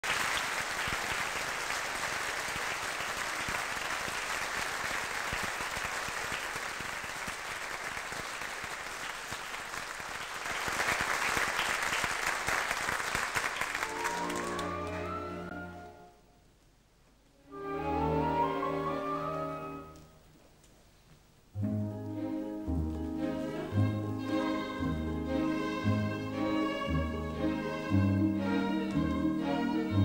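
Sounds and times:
audience applauding: 0.0 - 15.5
orchestra playing: 13.8 - 16.2, 17.4 - 20.1, 21.6 - 30.0.

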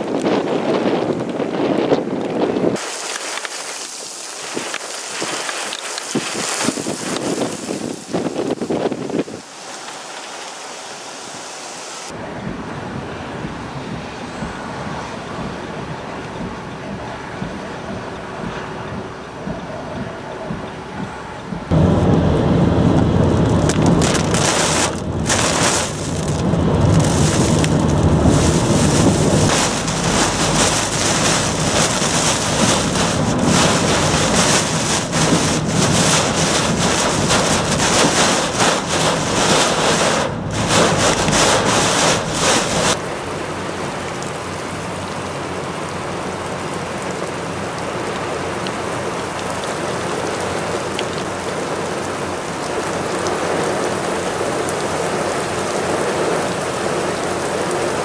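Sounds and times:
rain falling on pavement: 0.0 - 17.6, 21.6 - 58.0
rain beating on vehicle: 0.0 - 19.6, 20.5 - 58.0
low rumble: 12.2 - 43.0.

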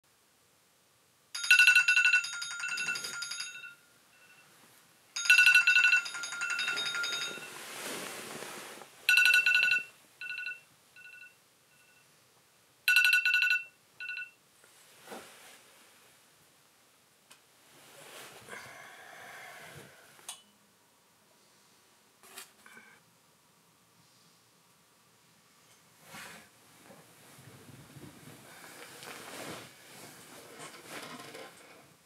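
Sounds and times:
phone alarm chiming ringtone: 1.4 - 4.5, 5.2 - 7.6, 9.1 - 12.0, 12.9 - 14.4
soft rustle: 6.1 - 9.1, 14.6 - 16.3, 17.6 - 18.6, 25.6 - 32.0.

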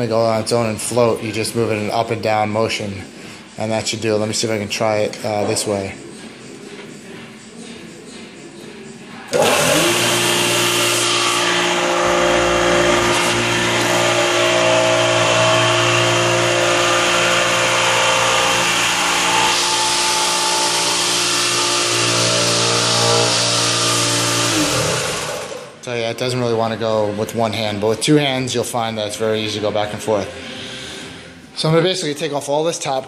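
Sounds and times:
floor sander motor humming: 9.3 - 25.8.

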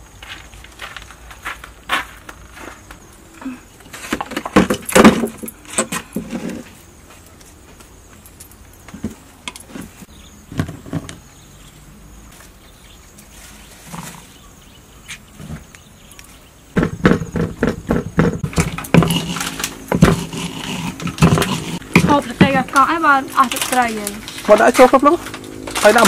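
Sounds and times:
stone mortar and pestle knocking: 16.8 - 19.3.

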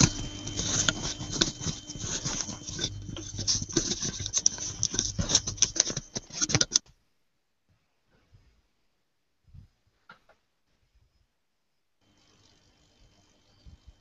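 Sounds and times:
irregular clicking and crackling: 0.0 - 7.0
faint steady hum: 0.0 - 14.0.

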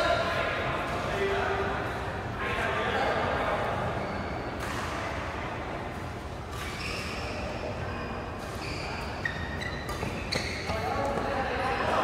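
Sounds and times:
shoe squeaks on court: 3.9 - 4.8, 6.5 - 11.3.

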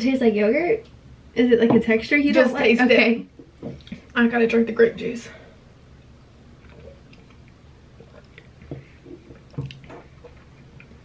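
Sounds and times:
sipping and swallowing: 6.4 - 11.0.

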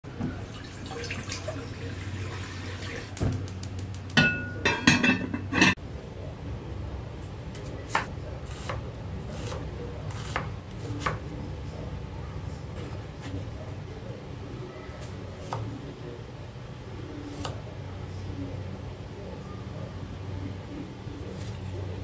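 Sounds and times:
water pouring into glass pot: 0.4 - 3.2
glass clink: 4.2 - 5.8.

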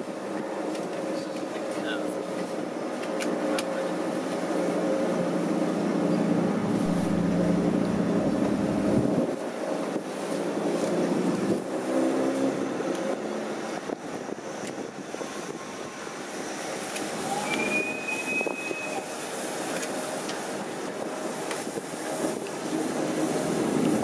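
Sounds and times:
brief high squeal: 17.2 - 19.1.

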